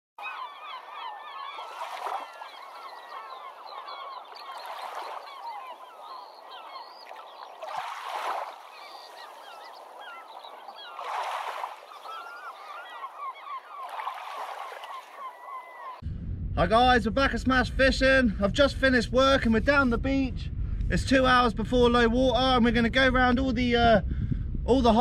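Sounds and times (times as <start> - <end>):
flock of birds honking: 0.2 - 7.6, 8.3 - 16.0.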